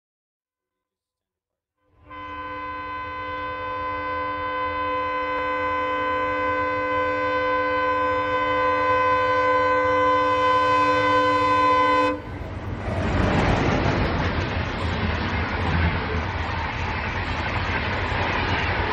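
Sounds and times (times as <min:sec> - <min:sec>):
locomotive air horn blast: 0:01.9 - 0:12.5
train wheels rolling on rails: 0:07.9 - 0:18.9.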